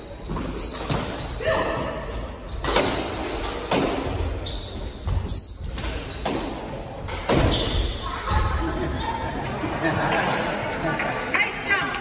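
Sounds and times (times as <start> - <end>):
sneaker squeak on wooden floor: 0.0 - 2.8, 3.6 - 6.5, 7.3 - 8.0
squash ball smacking racquets and walls: 0.2 - 8.0.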